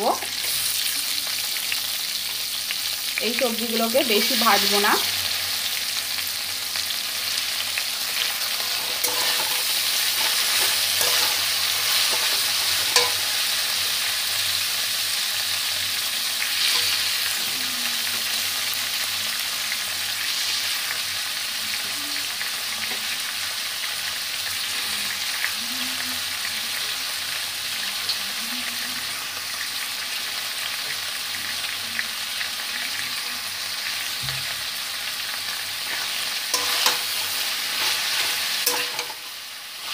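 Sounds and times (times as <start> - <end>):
vegetables sizzling in hot oil: 0.0 - 39.9
spatula scraping pan: 8.2 - 13.5, 16.6 - 17.3, 35.8 - 39.3.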